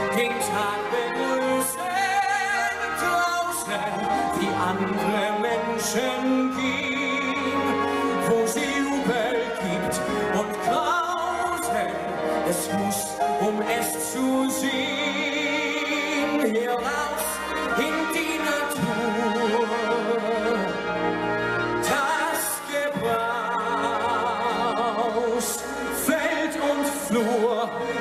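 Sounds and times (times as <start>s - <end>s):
man singing into microphone: 0.0s - 20.8s, 21.8s - 28.0s
band with flute trumpet and bass: 0.0s - 28.0s.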